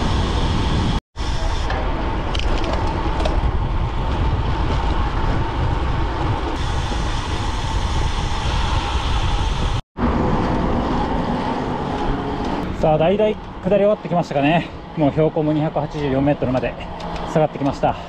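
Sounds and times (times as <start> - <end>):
wind buffeting microphone: 0.0 - 13.9
tyre noise on asphalt: 0.0 - 15.1.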